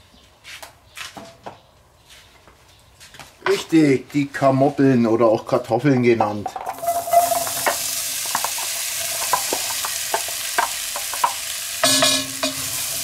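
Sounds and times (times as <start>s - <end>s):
potatoes sizzling in hot oil: 6.7s - 13.0s
potato pieces clicking and tapping: 8.2s - 11.6s.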